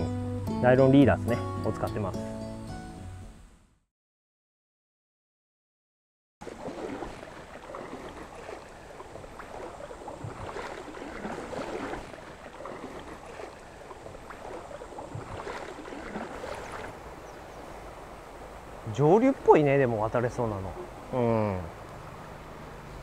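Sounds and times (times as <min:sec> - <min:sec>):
river water over stones: 0:06.4 - 0:23.0.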